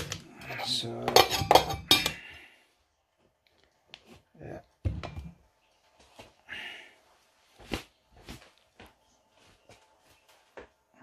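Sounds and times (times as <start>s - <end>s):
pot scraping: 0.0s - 2.2s.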